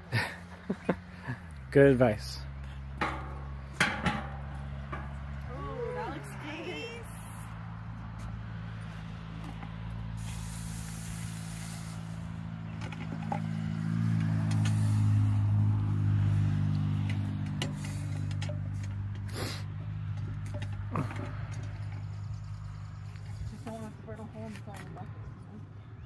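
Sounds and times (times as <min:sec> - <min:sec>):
low engine drone: 0:07.0 - 0:24.2.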